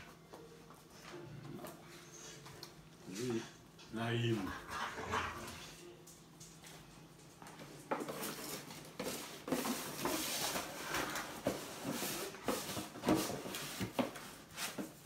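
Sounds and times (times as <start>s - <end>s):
cardboard box scraping on tile: 8.0s - 15.0s.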